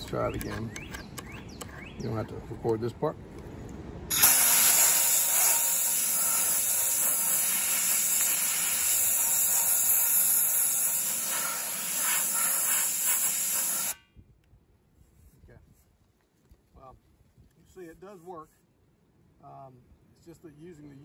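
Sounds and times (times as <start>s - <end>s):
blast gun hissing: 4.1s - 14.0s.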